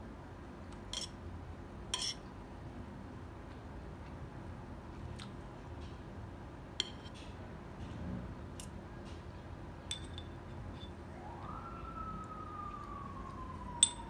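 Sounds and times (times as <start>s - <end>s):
low background hum: 0.0s - 14.0s
cutlery clinking on a ceramic plate: 0.9s - 1.2s, 1.9s - 2.2s, 9.9s - 10.9s.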